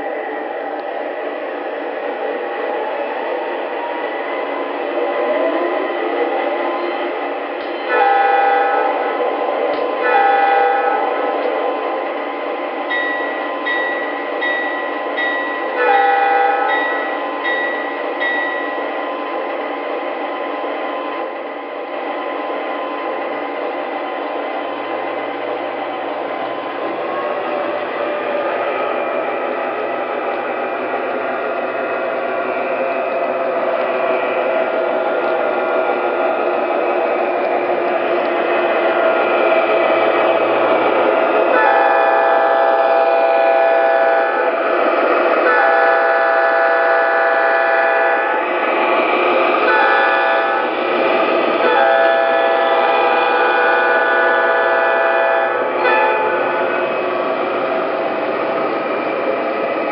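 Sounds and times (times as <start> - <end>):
locomotive horn blasts: 7.9 - 9.1, 10.0 - 11.4, 15.8 - 16.8, 41.5 - 44.6, 45.4 - 48.4, 49.6 - 50.7, 51.6 - 56.5
bell ringing: 12.9 - 18.8.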